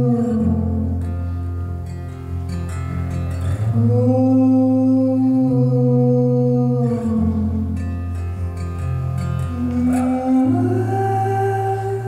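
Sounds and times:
person singing wordless vocal: 0:00.0 - 0:01.0, 0:03.6 - 0:07.9, 0:09.4 - 0:12.0
acoustic guitar: 0:00.0 - 0:12.0.

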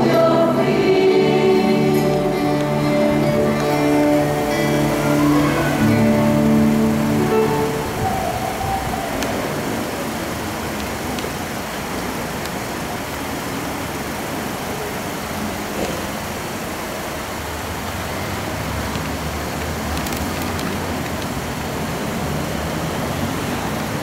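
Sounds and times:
steady noise: 0:00.0 - 0:18.2.

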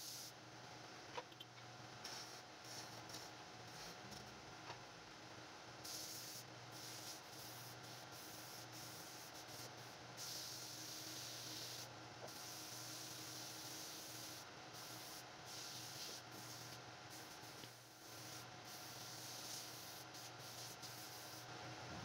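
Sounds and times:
sandpaper hissing on turning wood: 0:05.9 - 0:21.5.

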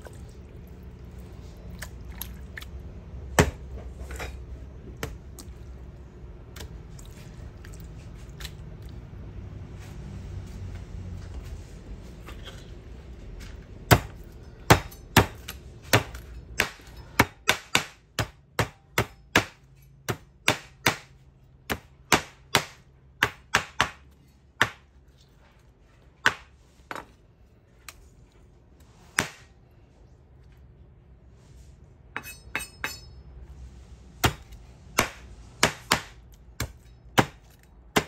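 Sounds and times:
knife chopping on wooden board: 0:24.6 - 0:24.9, 0:34.2 - 0:38.0.

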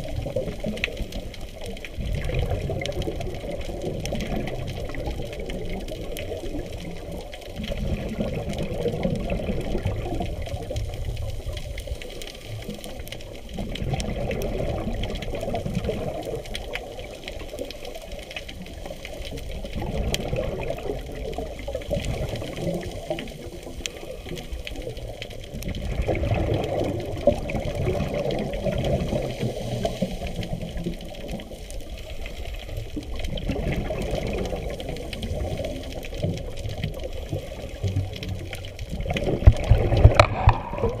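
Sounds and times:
muffled underwater breathing bubbles: 0:00.0 - 0:41.0.

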